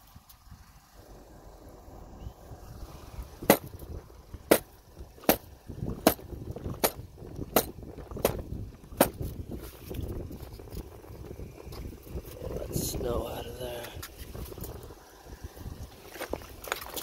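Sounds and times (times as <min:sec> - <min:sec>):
tire knocking on pavement: 0:03.4 - 0:03.8, 0:04.4 - 0:09.3.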